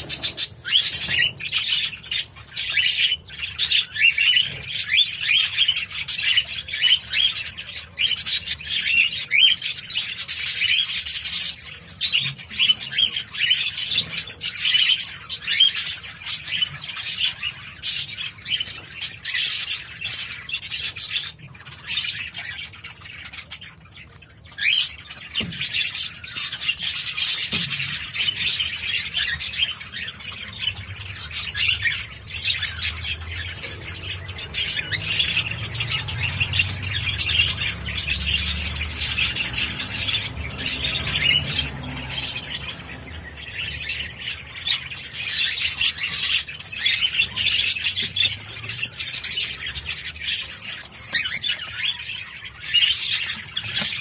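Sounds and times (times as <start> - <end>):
budgerigar warbling and chattering: 24.6 - 54.0.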